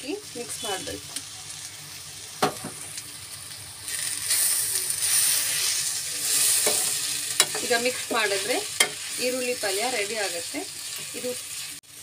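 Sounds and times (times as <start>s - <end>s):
food sizzling in a pan: 0.0s - 12.0s.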